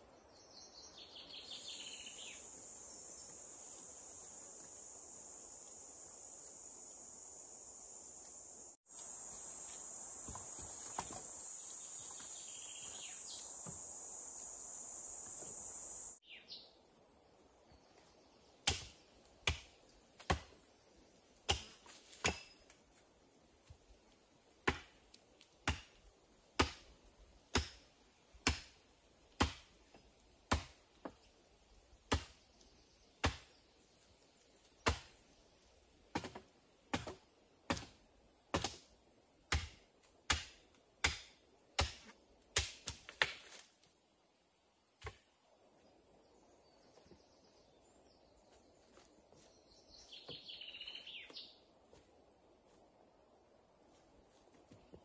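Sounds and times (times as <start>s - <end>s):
insects buzzing: 0.8s - 55.0s
axe chopping wood: 18.6s - 20.6s, 21.4s - 22.6s, 24.6s - 25.0s, 25.6s - 26.9s, 27.5s - 29.8s, 30.5s - 31.2s, 32.1s - 32.4s, 33.2s - 33.5s, 34.8s - 35.2s, 36.1s - 38.9s, 39.5s - 43.6s, 45.0s - 45.3s.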